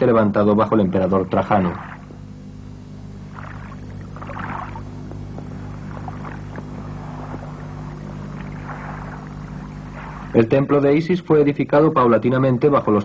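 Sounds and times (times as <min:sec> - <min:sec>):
steady low hum: 0:00.0 - 0:13.0
water lapping and splashing: 0:01.6 - 0:02.2, 0:03.2 - 0:10.6.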